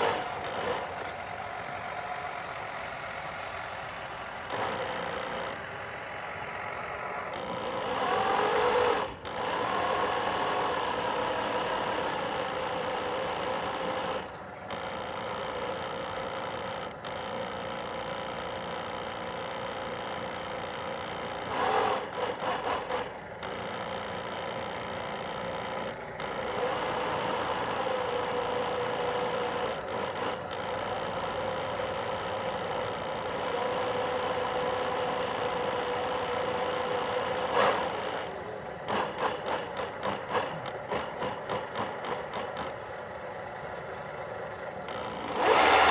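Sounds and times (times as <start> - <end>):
electric motor whine with hum: 0.0 - 45.9
fluttering rattling pulses: 21.4 - 45.9.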